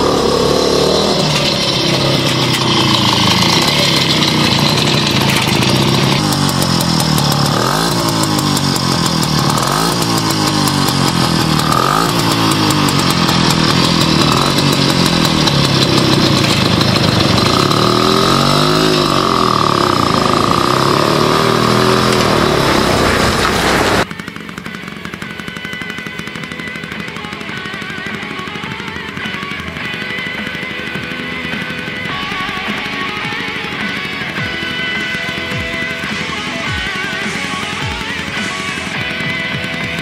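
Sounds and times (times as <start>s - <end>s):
motorcycle two-stroke engine revving: 0.0s - 40.0s.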